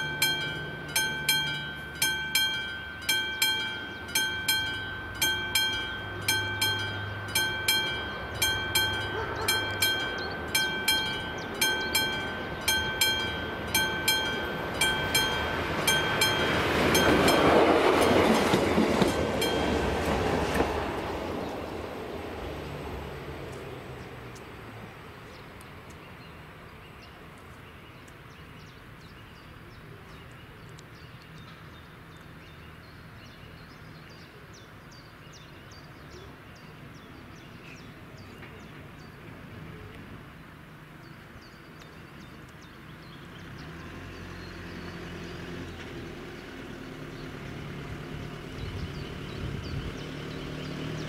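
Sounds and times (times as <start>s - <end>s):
small birds chirping: 0.0s - 21.9s
vehicle engine hum: 0.0s - 27.7s, 42.6s - 51.0s.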